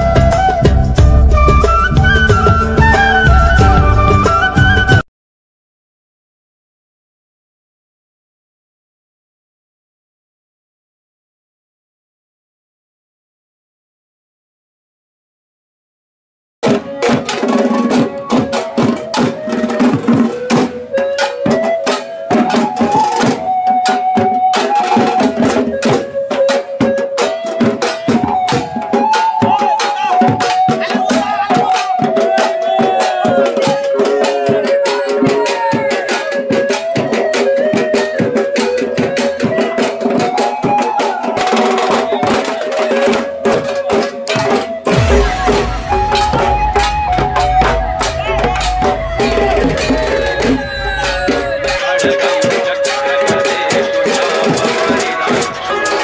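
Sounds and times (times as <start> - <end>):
barrel drums beaten fast: 44.9 - 56.0
metal percussion clanging: 44.9 - 56.0
wavering held melody: 44.9 - 56.0.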